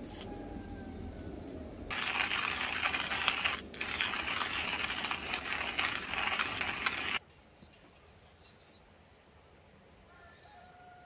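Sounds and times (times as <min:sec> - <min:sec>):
hand coffee grinder crunching beans: 0:01.9 - 0:07.2.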